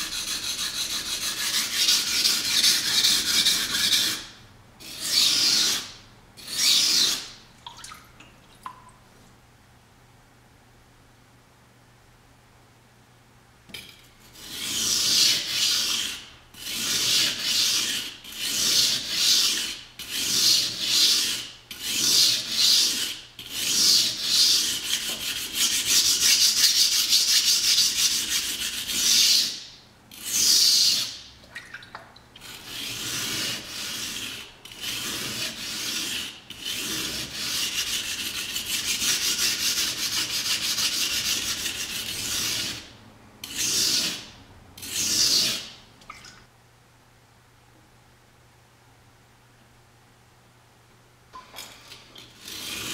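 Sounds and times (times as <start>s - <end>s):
knife scraping on water stone: 0.0s - 7.4s, 13.8s - 31.6s, 32.4s - 45.8s, 51.6s - 52.9s.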